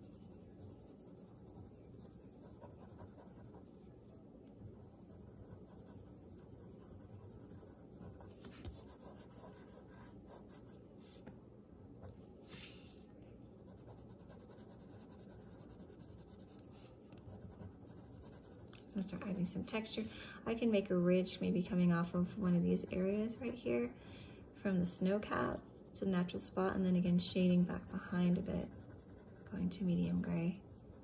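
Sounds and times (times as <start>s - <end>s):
pencil scratching on paper: 0.0s - 4.0s, 4.6s - 11.3s, 13.7s - 19.5s, 26.7s - 31.0s.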